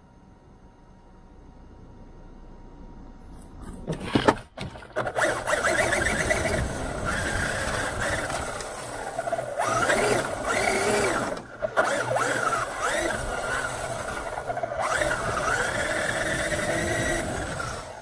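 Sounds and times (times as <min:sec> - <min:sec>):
rc car electric motor whining: 0:05.0 - 0:18.0.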